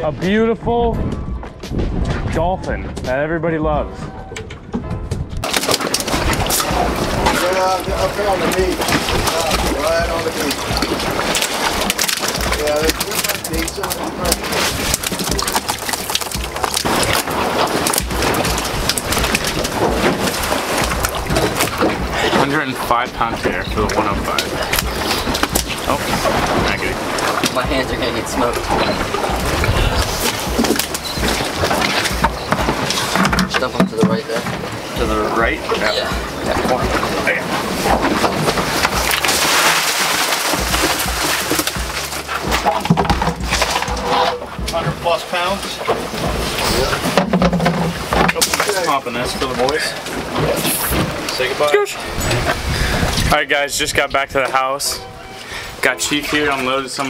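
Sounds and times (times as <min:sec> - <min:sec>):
wind buffeting the microphone: 0:00.0 - 0:05.5, 0:16.3 - 0:39.2, 0:49.4 - 0:55.8
knocks and clatter of fish handling: 0:04.3 - 0:51.6
fish slithering out of bucket: 0:37.6 - 0:44.6.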